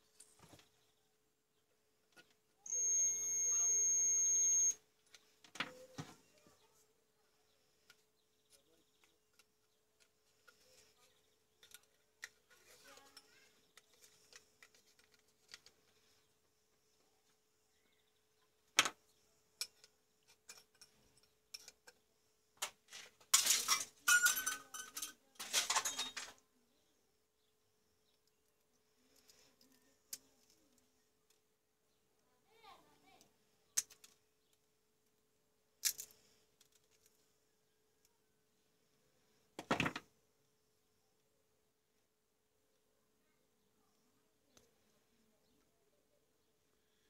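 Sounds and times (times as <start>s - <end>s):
plastic scraping and crackling: 8.8s - 16.2s, 25.4s - 26.4s.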